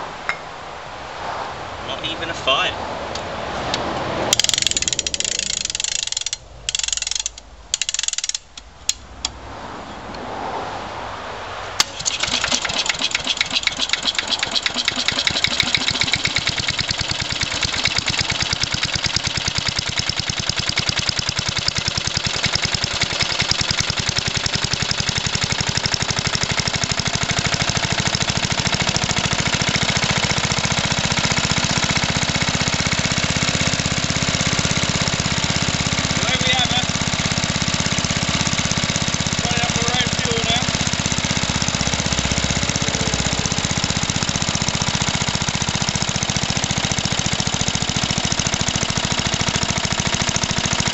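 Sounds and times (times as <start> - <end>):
engine whirr turning over: 3.7 - 10.1, 11.8 - 50.9
lawn mower engine running: 3.9 - 9.4, 11.8 - 50.9
starter clicks: 4.3 - 9.4, 11.8 - 33.8.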